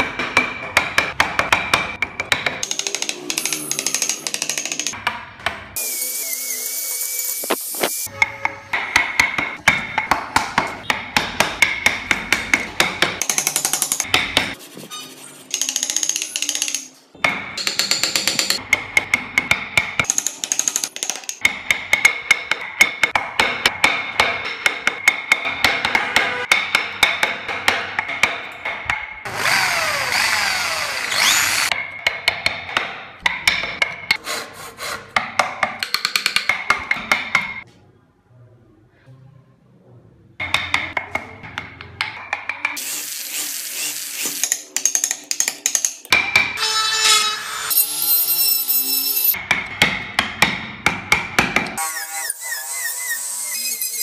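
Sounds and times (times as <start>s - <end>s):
mallet striking wood chisel: 0.0s - 5.7s, 7.4s - 14.6s, 15.5s - 29.3s, 31.2s - 34.2s, 35.2s - 37.6s, 49.3s - 51.8s.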